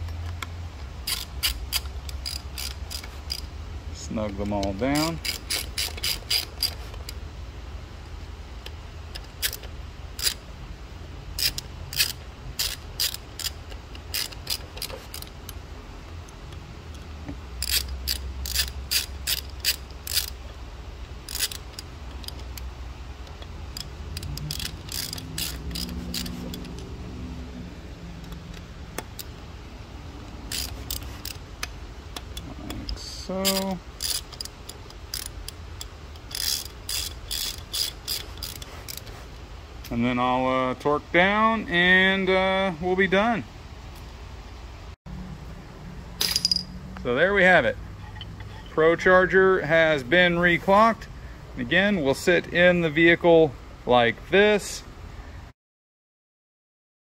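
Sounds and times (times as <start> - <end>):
hand ratchet clicking: 0.0 - 3.5, 4.2 - 7.2, 8.6 - 10.4, 11.3 - 15.6, 16.3 - 27.0, 30.2 - 39.1.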